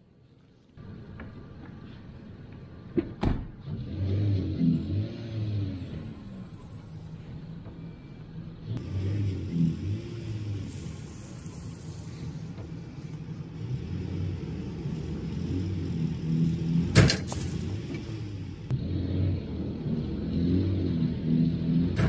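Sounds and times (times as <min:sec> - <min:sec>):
pickup truck engine revving: 0:08.7 - 0:12.3, 0:13.3 - 0:22.0.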